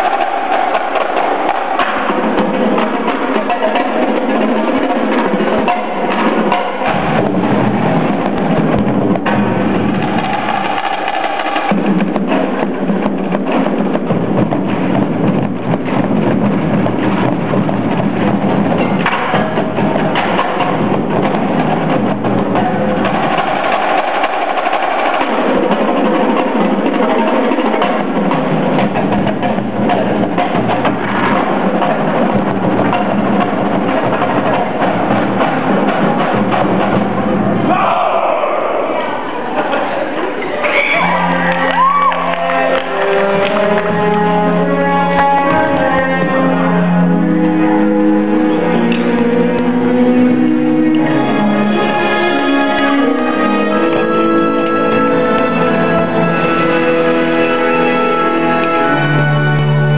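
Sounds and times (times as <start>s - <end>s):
bass drums: 0.0s - 24.6s, 25.4s - 37.9s
snare drums: 0.0s - 39.2s, 40.6s - 59.9s
tenor drums: 0.0s - 59.9s.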